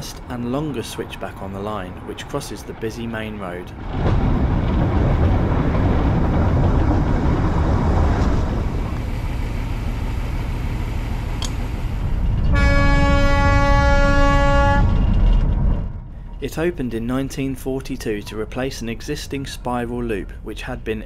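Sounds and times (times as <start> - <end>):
train rumbling on track: 0.0 - 21.0
train horn: 12.5 - 15.1.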